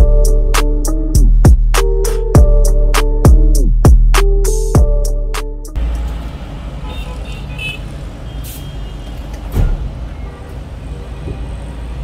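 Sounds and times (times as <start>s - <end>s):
traffic rumble: 5.7s - 12.0s
brief thud: 9.5s - 9.9s.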